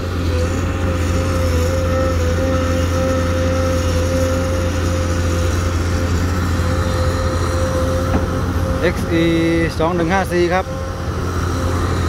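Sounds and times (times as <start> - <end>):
excavator diesel engine drone: 0.0 - 12.0
high whine: 0.0 - 12.0.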